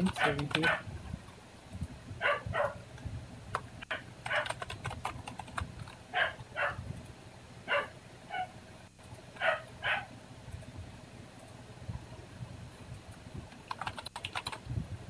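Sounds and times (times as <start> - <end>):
keyboard and mouse clicking: 0.0 - 0.8, 3.5 - 6.5, 13.5 - 14.7
dog barking: 0.2 - 0.9, 2.2 - 2.8, 3.9 - 4.6, 6.1 - 6.8, 7.7 - 8.6, 9.4 - 10.1.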